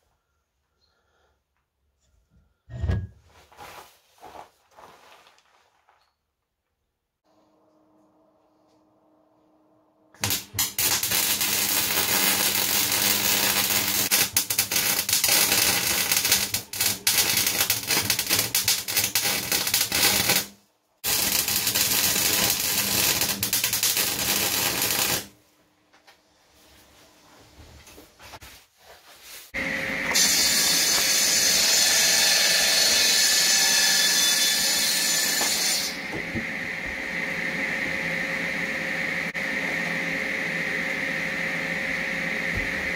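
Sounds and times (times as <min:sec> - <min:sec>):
arc welding crackle: 0:10.2 - 0:25.3.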